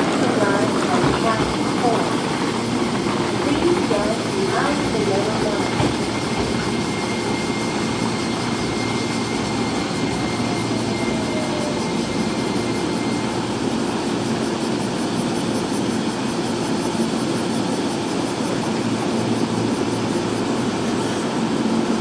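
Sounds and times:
electric train rumbling: 0:00.0 - 0:15.6.

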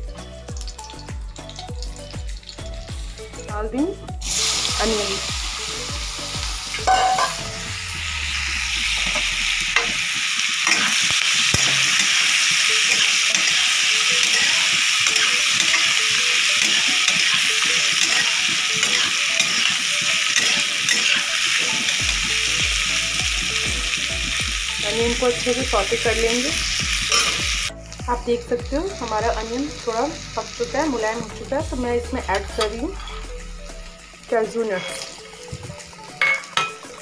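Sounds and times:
onions sizzling in oil: 0:00.0 - 0:37.0.

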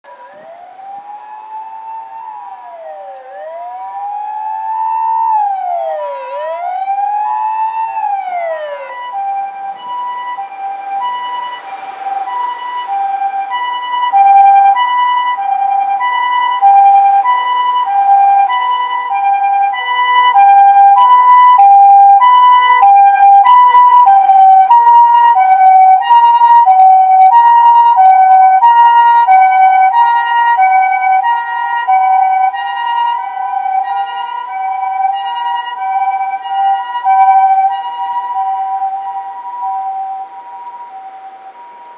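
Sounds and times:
ambulance siren wailing: 0:00.0 - 0:41.9
two-tone ambulance siren: 0:00.0 - 0:41.9.

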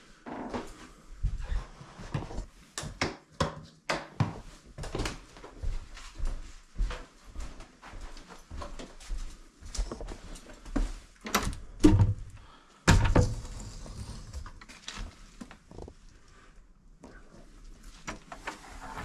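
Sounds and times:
footsteps on wooden floor: 0:04.2 - 0:11.1.

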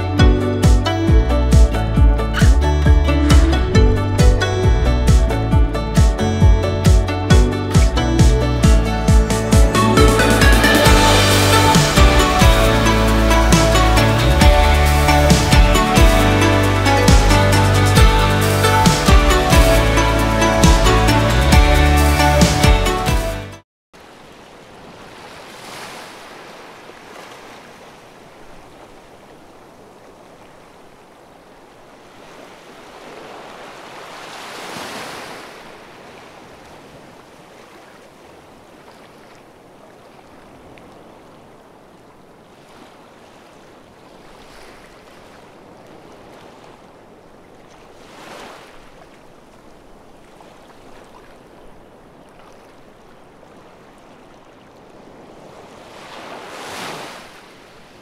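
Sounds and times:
waves washing onto beach: 0:24.0 - 0:58.0.

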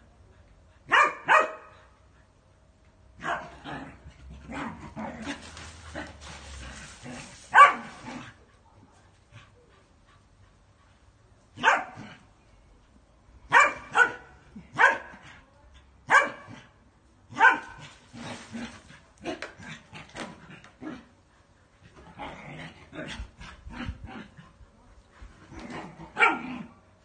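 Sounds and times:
dogs barking: 0:00.9 - 0:01.7, 0:07.5 - 0:07.9, 0:13.5 - 0:15.1
dogs playing: 0:01.7 - 0:16.0, 0:17.3 - 0:27.0.

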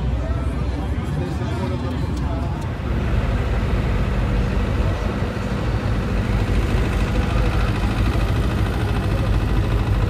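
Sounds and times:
heavy engine idling: 0:00.0 - 0:10.0.

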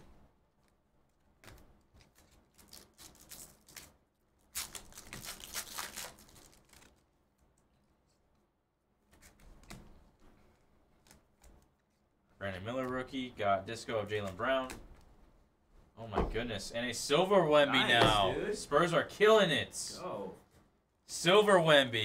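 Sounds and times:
wrapper tearing and crinkling: 0:01.4 - 0:07.2.

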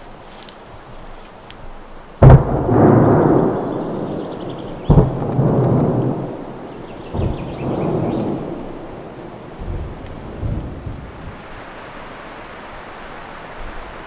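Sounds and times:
heavy booms with rolling echo: 0:02.2 - 0:11.4.

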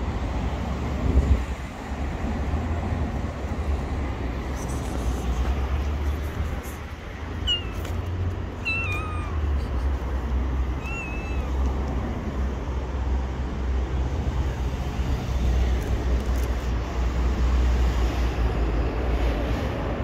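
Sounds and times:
cat meowing: 0:07.4 - 0:07.9, 0:08.6 - 0:09.6, 0:10.7 - 0:11.7.

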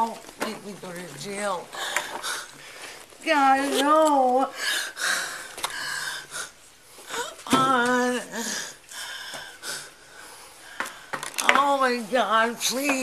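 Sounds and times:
wheezing gasping breaths: 0:01.7 - 0:03.2, 0:04.5 - 0:07.5, 0:08.3 - 0:11.4
woman sobbing: 0:03.6 - 0:08.9.

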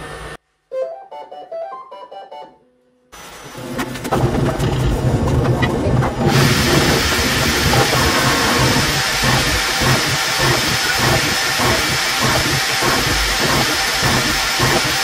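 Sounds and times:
motors whirring: 0:03.8 - 0:15.0
cooling fans hissing: 0:06.2 - 0:15.0.

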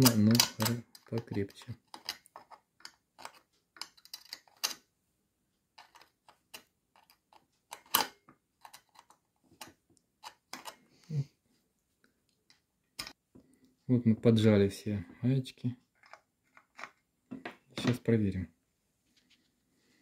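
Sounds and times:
hand tool clicking on metal nuts: 0:00.0 - 0:02.5.

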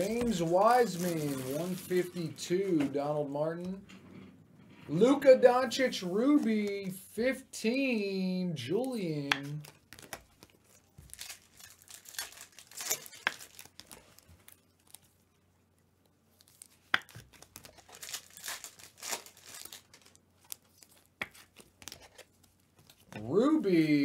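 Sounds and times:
foil wrappers crinkling and tearing: 0:00.0 - 0:02.3, 0:08.8 - 0:15.2, 0:16.3 - 0:23.1.

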